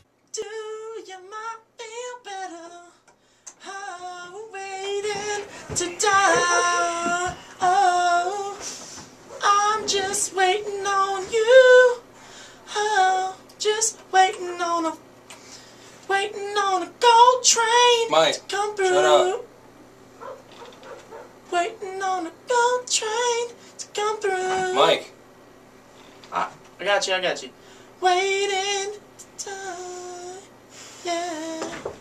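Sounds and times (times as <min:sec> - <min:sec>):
person singing high: 0:04.8 - 0:08.5.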